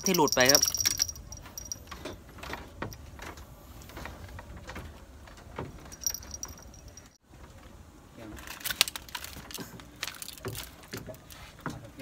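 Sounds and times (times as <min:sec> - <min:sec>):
fishing reel clicking and rattling: 0:00.0 - 0:01.9, 0:06.0 - 0:07.0.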